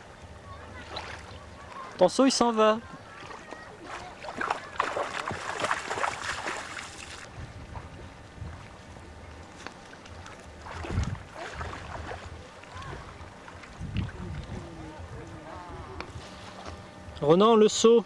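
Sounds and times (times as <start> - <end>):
water lapping and splashing: 0.3 - 16.8
wind rumble on microphone: 7.2 - 9.2, 10.6 - 16.8.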